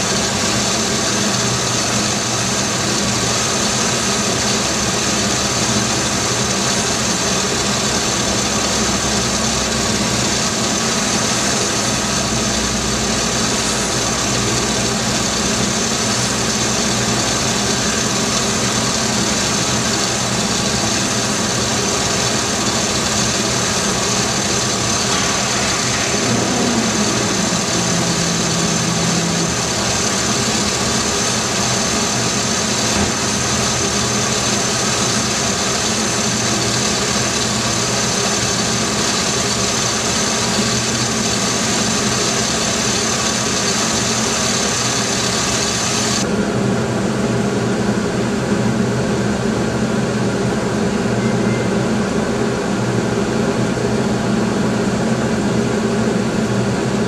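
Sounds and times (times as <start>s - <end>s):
car engine idling: 0.0s - 46.2s
high hiss: 10.9s - 46.2s.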